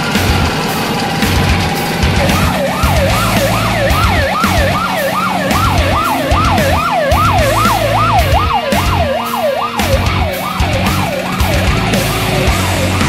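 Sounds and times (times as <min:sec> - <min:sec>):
electronic siren yelping: 0:00.0 - 0:13.0.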